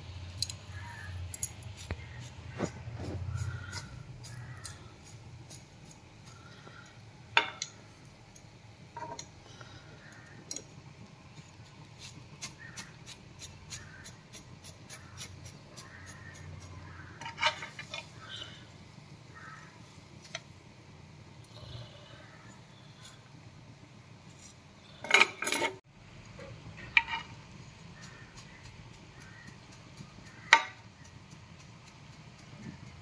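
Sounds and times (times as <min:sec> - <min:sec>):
metal spatula scraping pan: 0:16.8 - 0:18.6, 0:25.0 - 0:25.8, 0:26.8 - 0:27.4.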